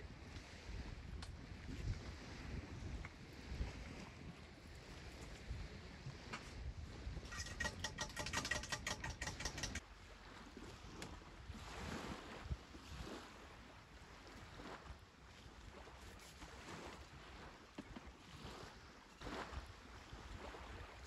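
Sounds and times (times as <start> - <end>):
wind on microphone: 0.0 - 9.8, 10.6 - 17.6
rapid clicks: 7.3 - 9.8
waves washing on sand: 10.0 - 21.0.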